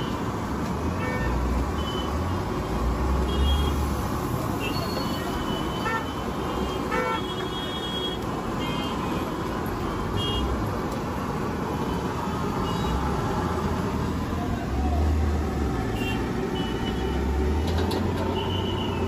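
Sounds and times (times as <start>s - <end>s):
traffic rumble: 0.0s - 19.0s.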